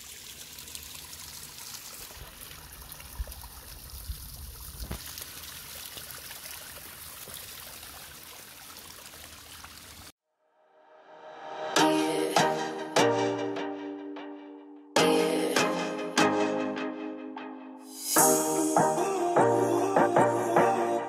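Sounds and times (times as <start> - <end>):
stream trickling and splashing: 0.0 - 10.2.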